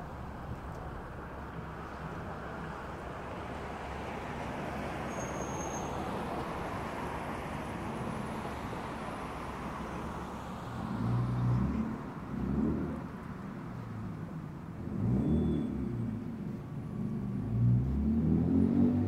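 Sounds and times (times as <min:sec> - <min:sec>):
city road traffic: 0:00.0 - 0:19.0
faint high-pitched squeak: 0:05.1 - 0:06.0
vehicle passing close: 0:17.3 - 0:19.0.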